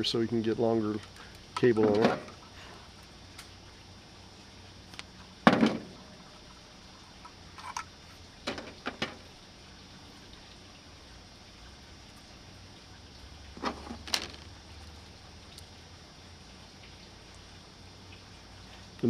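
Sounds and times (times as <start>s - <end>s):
loud thump: 5.4s - 5.9s
wire clicks and rustles: 13.6s - 15.7s.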